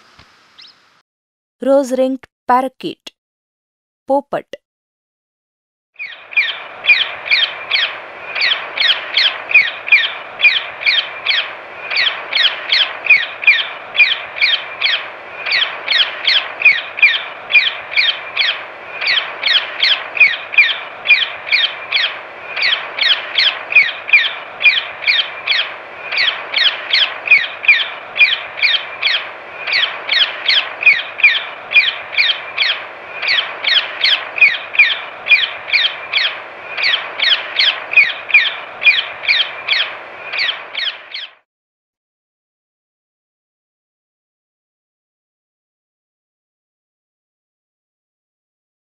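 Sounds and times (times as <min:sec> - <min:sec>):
parakeet harsh high calls: 0:06.0 - 0:41.3.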